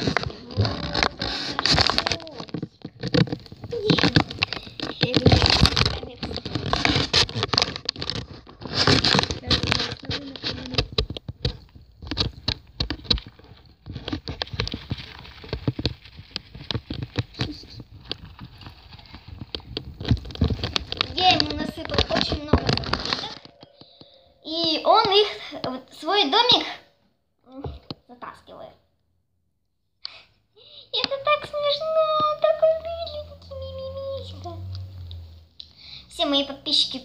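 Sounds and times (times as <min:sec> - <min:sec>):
hamster bedding rustling: 0:00.0 - 0:23.8
phone handling noise: 0:00.0 - 0:25.4.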